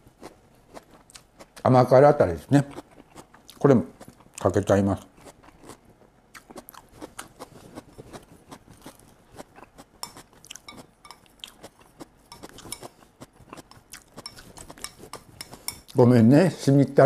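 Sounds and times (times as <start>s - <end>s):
chopsticks clicking on ceramic bowls: 10.0s - 11.3s, 12.3s - 12.9s, 13.6s - 16.0s.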